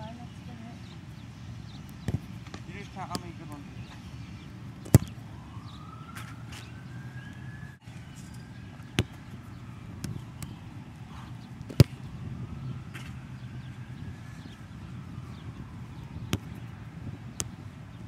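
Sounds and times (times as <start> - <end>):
outdoor background noise: 0.0 - 18.0
soccer ball thumps: 2.0 - 3.4, 4.8 - 5.2, 8.7 - 10.6, 11.6 - 12.1, 16.0 - 17.7.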